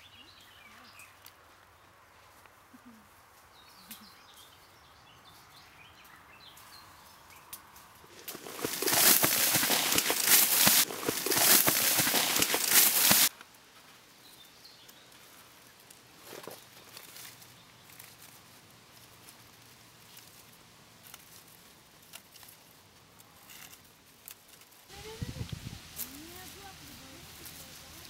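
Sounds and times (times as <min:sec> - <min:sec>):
stalks rustling: 0:06.5 - 0:28.0.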